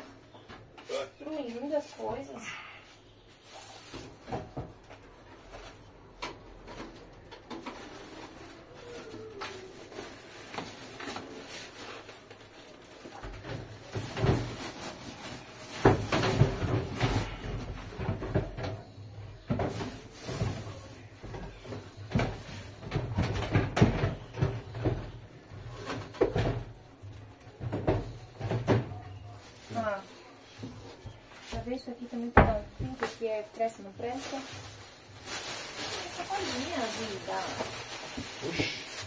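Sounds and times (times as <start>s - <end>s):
plastic and cardboard rustling: 3.3s - 39.0s
things clunking on shelves: 13.2s - 26.8s.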